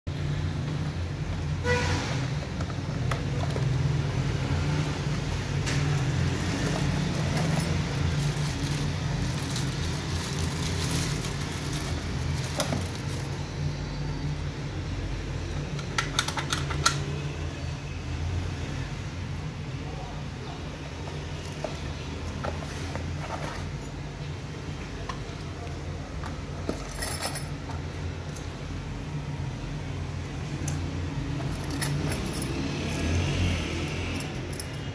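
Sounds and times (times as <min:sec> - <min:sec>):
plastic bag crinkling: 0:06.2 - 0:13.4.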